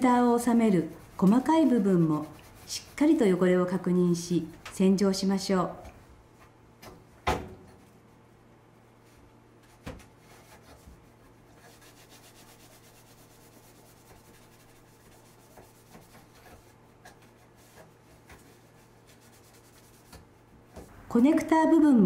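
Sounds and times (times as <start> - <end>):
cloth rubbing on metal rail: 0.4 - 3.4, 10.1 - 20.5.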